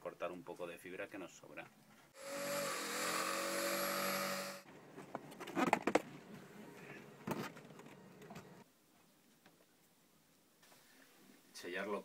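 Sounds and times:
electric jigsaw cutting: 2.2 - 4.6.

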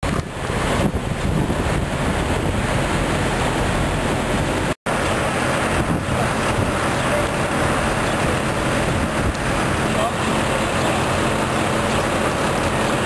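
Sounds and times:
steady low rumble: 0.0 - 13.0
wind buffeting microphone: 0.0 - 13.0.

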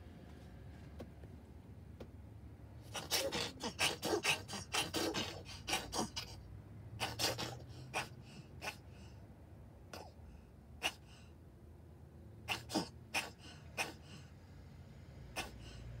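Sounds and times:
cat coughing: 2.9 - 6.4, 7.0 - 9.1, 9.9 - 10.2, 10.8 - 11.3, 12.4 - 14.2, 15.3 - 15.8.

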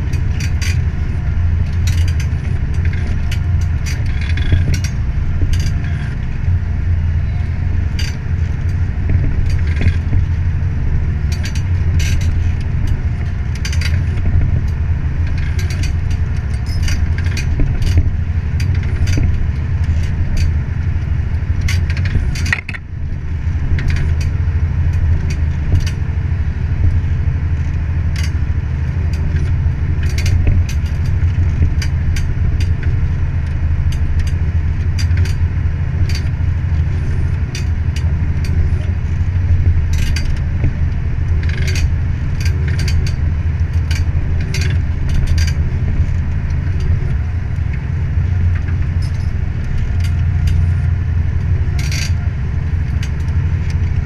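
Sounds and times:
plough and hitch clicks and rattles: 0.0 - 54.0
tractor diesel engine under load: 0.0 - 54.0.

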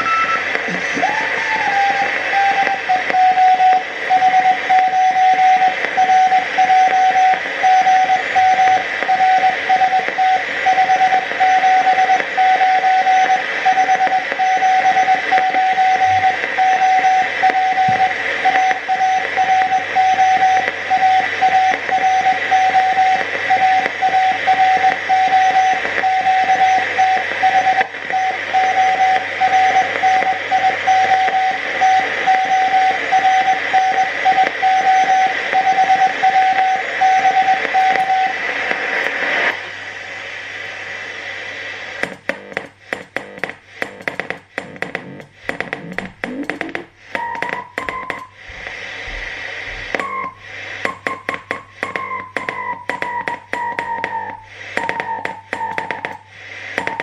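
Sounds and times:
morse code tone: 0.0 - 38.4, 45.8 - 49.2
radio band hiss: 0.0 - 57.0.

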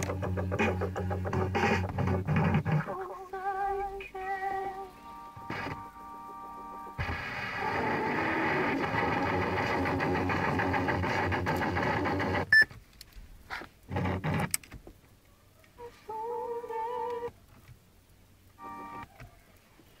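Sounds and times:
music from car stereo: 0.0 - 12.6.

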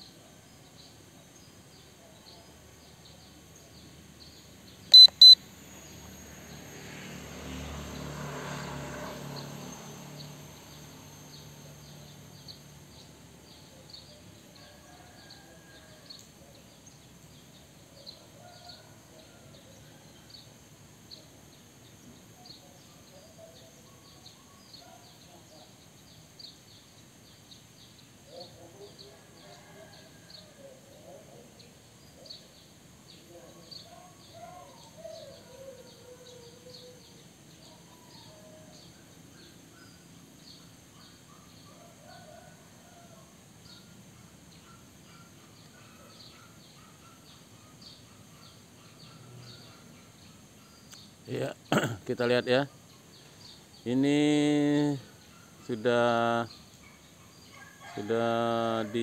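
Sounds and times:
faint high chirping: 0.0 - 6.6
vehicle passing by: 4.0 - 14.0
short electronic beeps: 4.9 - 5.5.

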